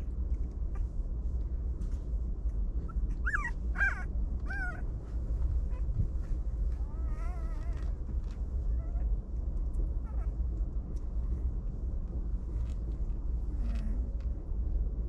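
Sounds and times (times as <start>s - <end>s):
steady low rumble: 0.0s - 15.0s
puppies whining: 2.8s - 4.9s, 6.8s - 8.0s, 8.6s - 9.1s, 10.0s - 10.4s.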